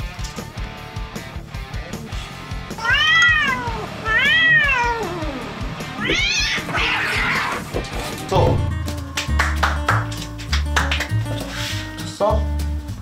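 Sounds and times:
background music with steady beat: 0:00.0 - 0:06.6, 0:07.6 - 0:13.0
cat meowing: 0:02.7 - 0:07.7.

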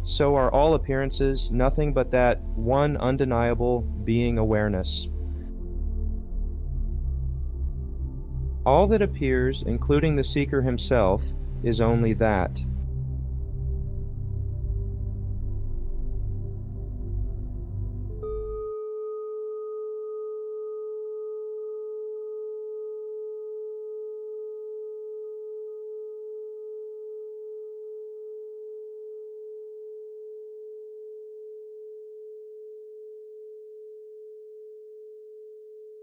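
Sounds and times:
singing bowl ringing: 0:18.2 - 0:27.1.

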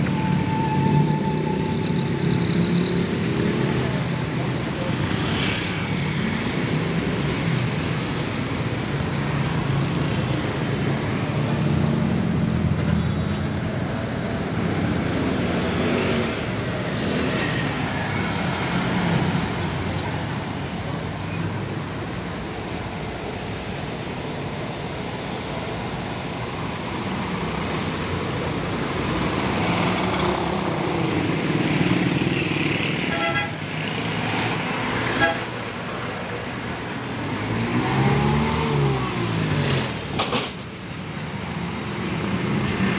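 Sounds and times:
road traffic engine rumble: 0:00.0 - 0:42.9
vehicle horn toot: 0:33.1 - 0:33.6.

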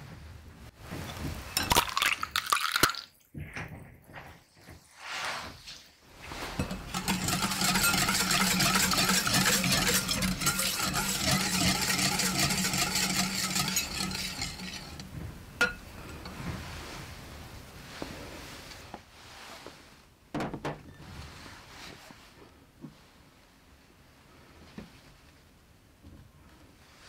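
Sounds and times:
whisk beating batter in bowl: 0:06.3 - 0:15.8.

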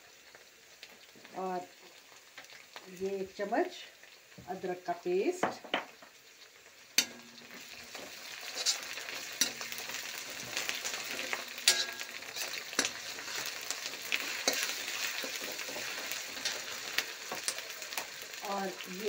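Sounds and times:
onions sizzling in oil: 0:00.0 - 0:19.0
metal spoon scraping iron pan: 0:07.0 - 0:17.6.

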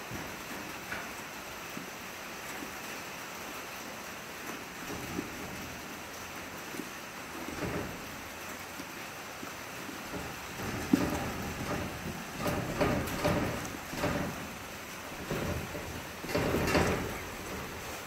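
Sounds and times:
rain hissing: 0:00.0 - 0:18.0
donkey munching hay: 0:09.6 - 0:18.0.

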